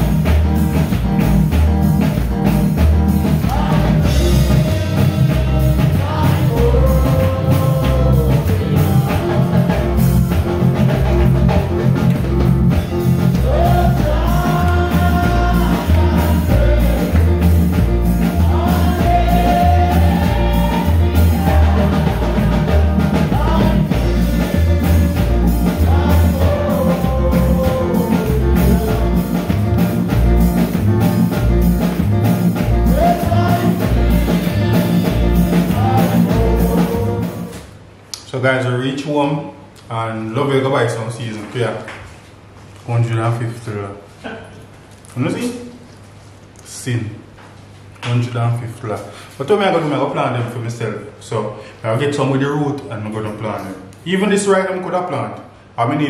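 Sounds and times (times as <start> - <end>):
steady drum beat: 0.0 - 37.6
heavy bass: 0.0 - 38.1
live worship band: 0.0 - 56.0
person singing: 3.4 - 11.1, 13.3 - 29.8, 32.7 - 37.6.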